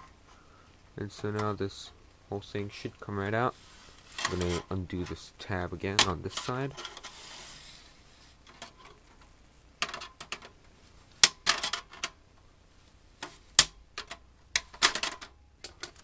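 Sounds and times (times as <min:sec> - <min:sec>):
sheet metal clicks and rattles: 0:08.5 - 0:10.6, 0:11.2 - 0:12.2, 0:13.2 - 0:16.0.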